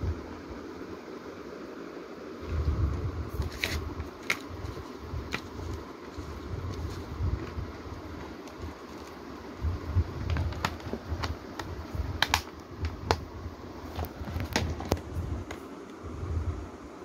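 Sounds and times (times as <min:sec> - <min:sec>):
hands handling near microphone: 0:03.3 - 0:09.2, 0:13.9 - 0:15.7
plastic case clicks: 0:10.2 - 0:13.2.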